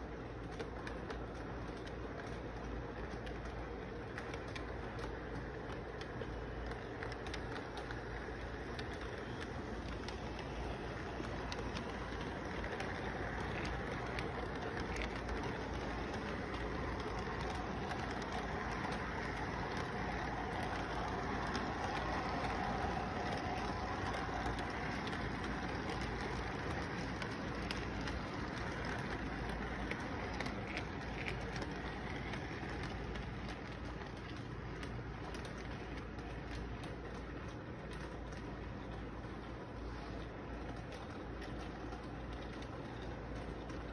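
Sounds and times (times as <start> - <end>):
model train rolling on track: 0.0 - 43.9
wheels clicking: 0.0 - 43.9.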